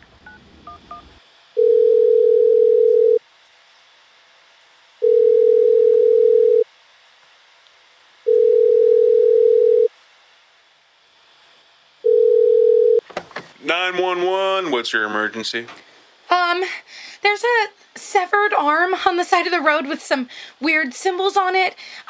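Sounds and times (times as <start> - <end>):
telephone ringback tone: 0.3 - 3.2, 5.0 - 6.6, 8.3 - 9.9, 12.1 - 13.0.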